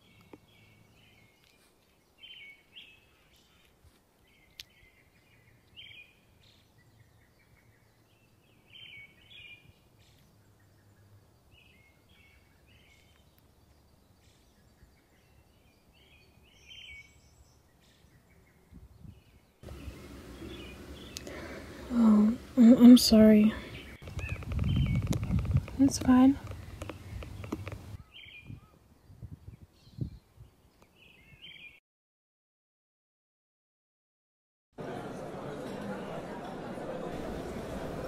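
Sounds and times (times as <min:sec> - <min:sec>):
even rush of noise: 0:19.6 - 0:25.8.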